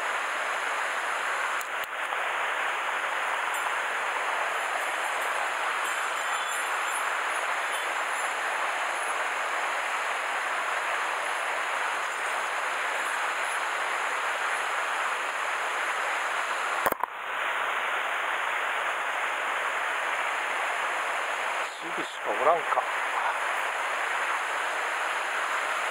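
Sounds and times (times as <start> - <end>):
sharp click: 16.8 - 17.1.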